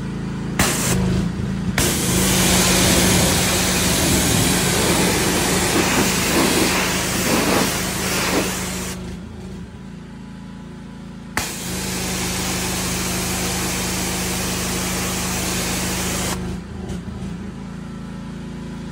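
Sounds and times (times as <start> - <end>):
pressure washer motor hum: 0.3 - 9.8, 11.4 - 16.7
water jet hissing: 0.6 - 1.0, 1.8 - 9.0, 11.4 - 16.4.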